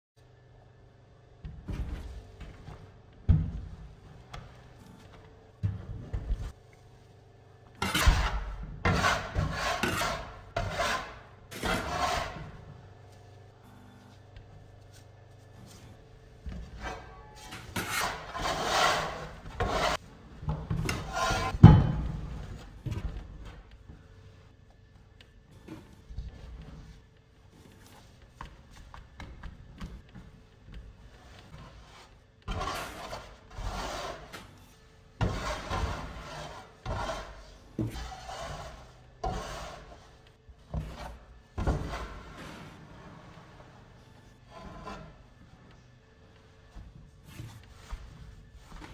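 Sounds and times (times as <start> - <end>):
scraper scraping across table: 7.8 - 12.6, 16.7 - 20.0, 20.8 - 21.6, 31.5 - 34.6, 35.2 - 40.2, 40.8 - 45.3.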